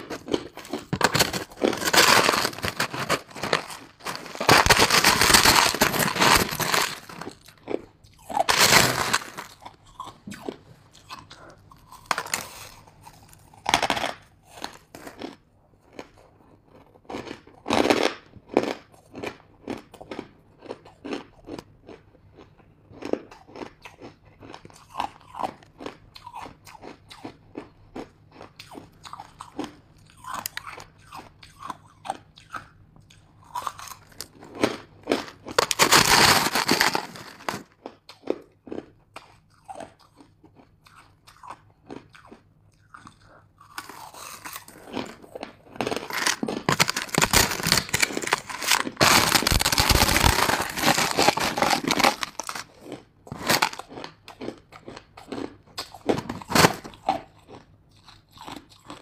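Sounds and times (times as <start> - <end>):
ice crunching while chewed: 0.0 - 59.0
metal spoon digging into ice: 0.6 - 7.4.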